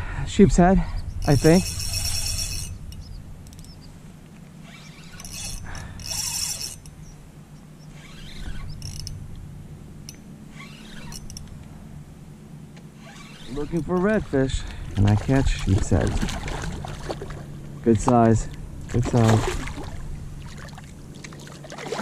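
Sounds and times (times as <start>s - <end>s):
fishing reel working: 0.9s - 3.9s, 4.6s - 7.2s, 7.8s - 9.2s, 10.1s - 11.5s, 13.0s - 14.1s.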